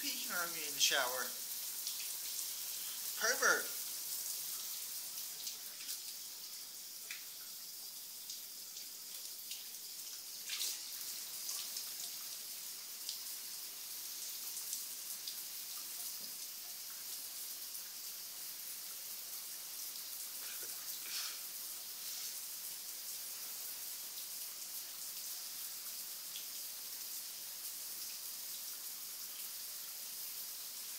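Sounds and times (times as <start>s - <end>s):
shower spray into bathtub: 0.0s - 7.4s, 19.8s - 23.9s.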